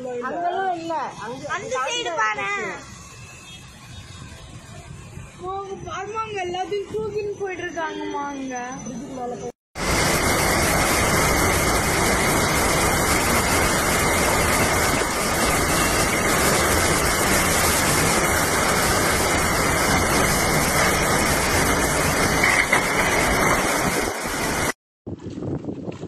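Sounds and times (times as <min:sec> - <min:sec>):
strong wind: 0:03.9 - 0:07.2, 0:09.8 - 0:26.0
heavy rain: 0:09.8 - 0:24.8
wind buffeting microphone: 0:10.0 - 0:26.0.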